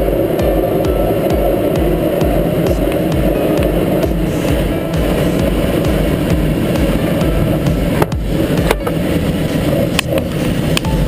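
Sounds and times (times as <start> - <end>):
rushing airflow in cockpit: 0.0 - 11.0.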